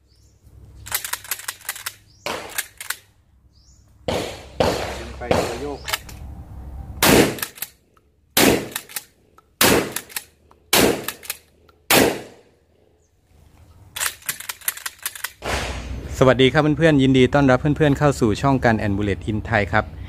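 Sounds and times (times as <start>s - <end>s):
shotgun blasts: 2.2s - 2.8s, 4.1s - 6.1s, 7.0s - 7.6s, 8.4s - 9.0s, 9.6s - 11.3s, 11.9s - 12.5s, 15.4s - 16.1s.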